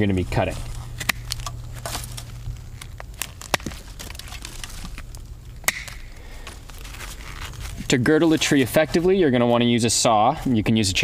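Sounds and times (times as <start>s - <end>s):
leaves rustling: 0.0s - 10.6s
twigs snapping: 0.6s - 9.1s.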